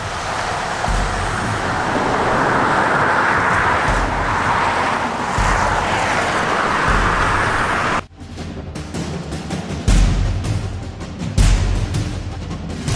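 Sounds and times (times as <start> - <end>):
low rumbles: 0.0 - 8.1
road and wind noise from car: 0.0 - 8.1.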